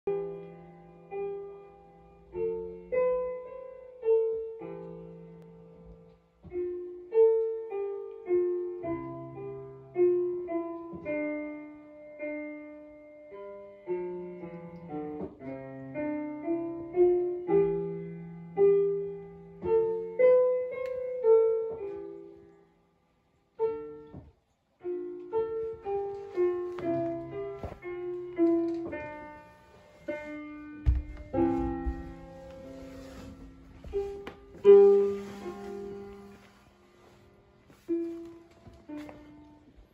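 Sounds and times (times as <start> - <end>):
solo piano music: 0.1 - 39.9
low thump: 30.8 - 32.2.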